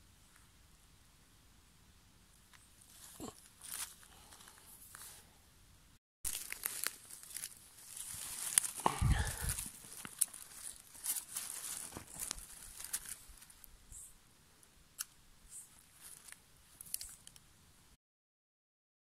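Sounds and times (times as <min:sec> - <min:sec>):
dry leaves crackling and rustling: 0:02.8 - 0:05.1, 0:06.3 - 0:13.7, 0:15.5 - 0:17.4
twigs snapping: 0:06.3 - 0:13.7, 0:15.0 - 0:15.2, 0:15.8 - 0:17.4.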